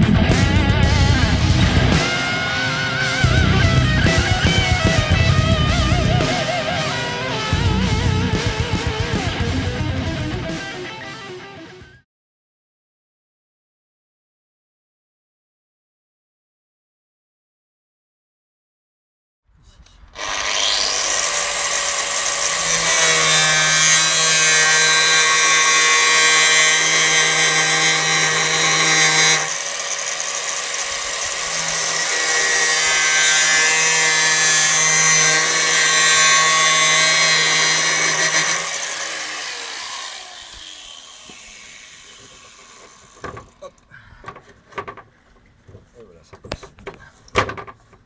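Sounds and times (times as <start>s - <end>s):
angle grinder cutting metal: 0.0s - 11.6s, 20.1s - 43.7s.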